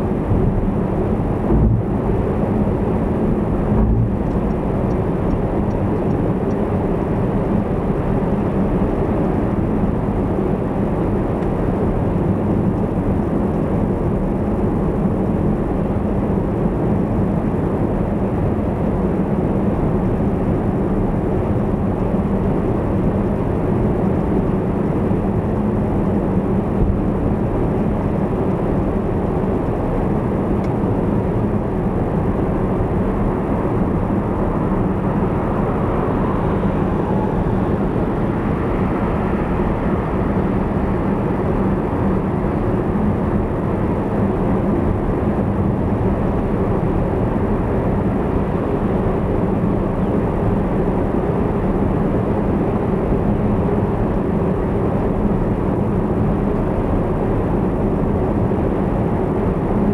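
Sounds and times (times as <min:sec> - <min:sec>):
tyre and road noise: 0:00.0 - 0:06.1.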